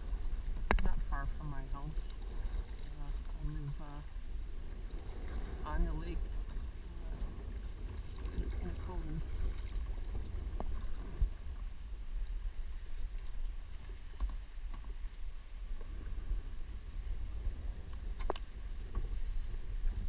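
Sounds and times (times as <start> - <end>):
paddle strokes splashing water: 0.0 - 20.0
steady low rumble: 0.0 - 20.0.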